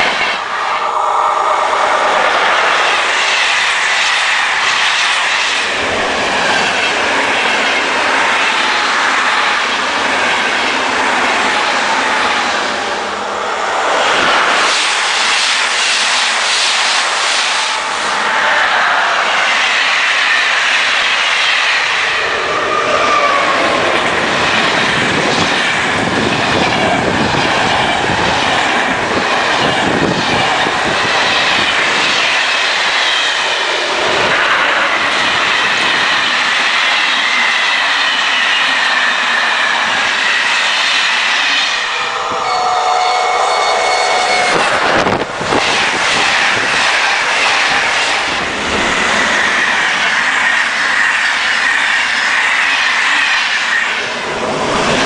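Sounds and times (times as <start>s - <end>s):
electric locomotive passing: 0.0s - 55.0s
train coaches rushing by: 0.0s - 55.0s
wheel squeal: 40.2s - 45.0s
steady pitched tone: 41.7s - 46.4s.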